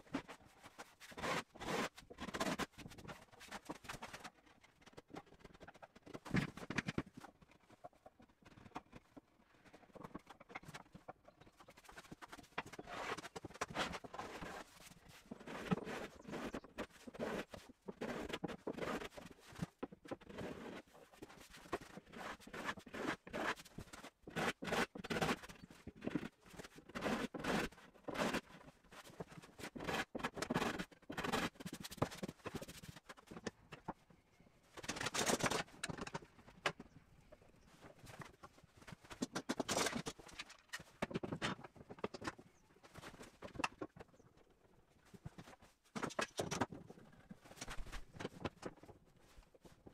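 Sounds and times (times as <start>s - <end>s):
hand tools scraping wood: 0.1s - 4.3s, 11.6s - 33.4s.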